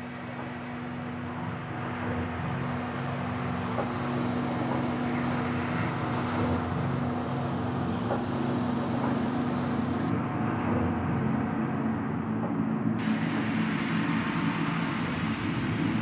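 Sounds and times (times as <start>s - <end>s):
steady droning hum: 0.0s - 16.0s.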